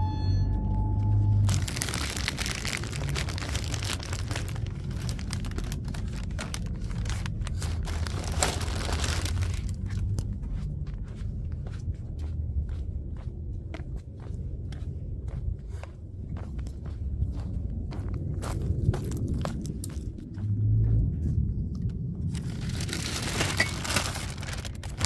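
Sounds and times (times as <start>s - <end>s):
steady low hum: 0.0s - 25.0s
grocery bags rustling: 1.4s - 10.3s, 22.3s - 25.0s.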